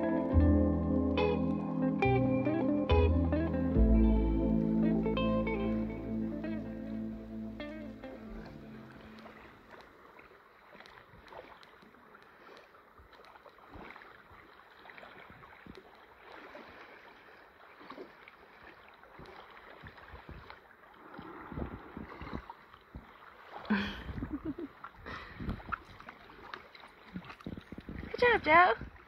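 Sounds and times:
paddleboard bumping shore: 0:03.8 - 0:14.5
paddle splashing in water: 0:07.8 - 0:29.0.

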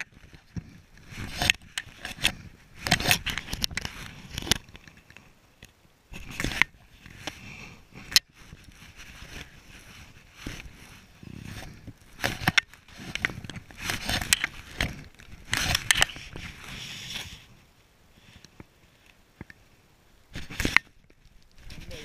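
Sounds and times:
fabric scraping against camera: 0:00.0 - 0:04.8, 0:06.1 - 0:17.6, 0:21.5 - 0:22.0.

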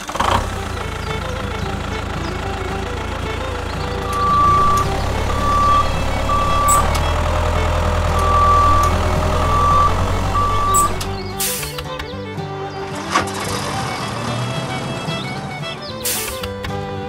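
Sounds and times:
low motor hum: 0:00.1 - 0:17.0
sharp clicks: 0:03.8 - 0:12.2, 0:16.0 - 0:16.8
high reversing alarm beeps: 0:04.0 - 0:07.0, 0:08.1 - 0:11.2.

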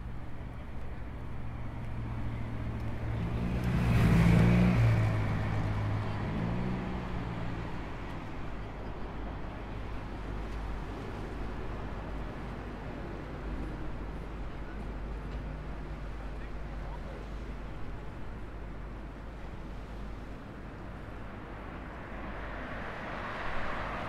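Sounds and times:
traffic rumble: 0:00.0 - 0:24.0
vehicle passing by: 0:03.0 - 0:07.8.

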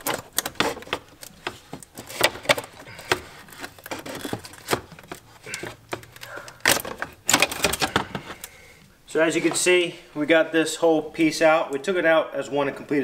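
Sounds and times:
hand tools clicking and clattering: 0:00.0 - 0:08.5.

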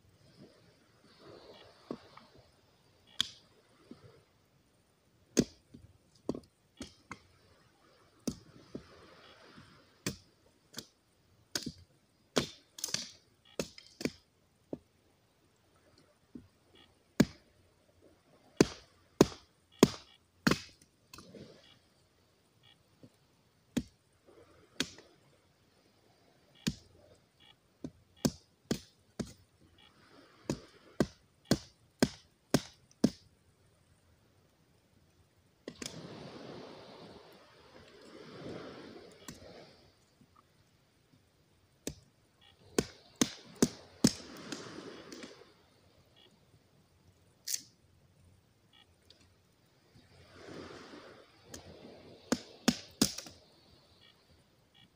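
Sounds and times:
hatchet chopping wood: 0:12.4 - 0:14.2, 0:18.6 - 0:20.8, 0:27.8 - 0:29.4, 0:30.5 - 0:33.2, 0:42.8 - 0:44.2, 0:52.3 - 0:53.3.

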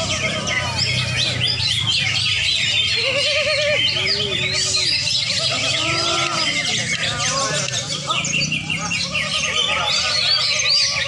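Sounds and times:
chorus of birds singing: 0:00.0 - 0:11.0
people's voices calling: 0:00.0 - 0:11.0.

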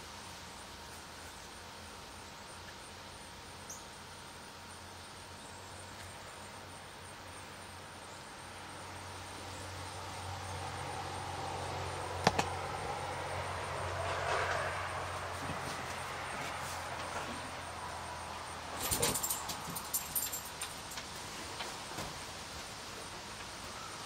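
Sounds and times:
steady low hum: 0:00.0 - 0:21.0
vehicle passing: 0:09.4 - 0:20.5
sharp click: 0:12.2 - 0:12.5.

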